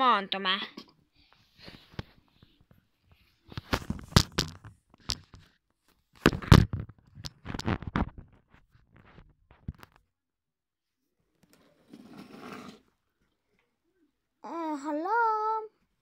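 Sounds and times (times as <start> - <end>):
handling knocks and scrapes: 11.5 - 12.9.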